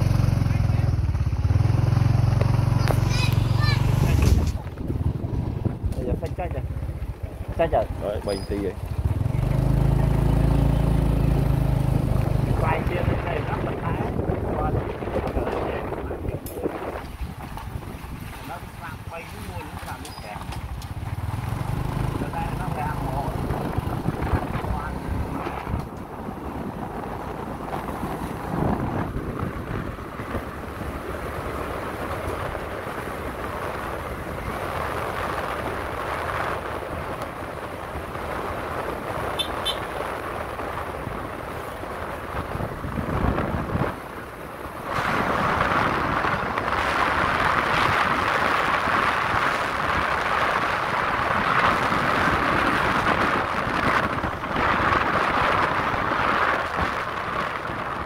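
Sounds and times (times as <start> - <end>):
motorbike engine and road noise: 0.0 - 58.0
wind rushing over microphone: 0.0 - 58.0.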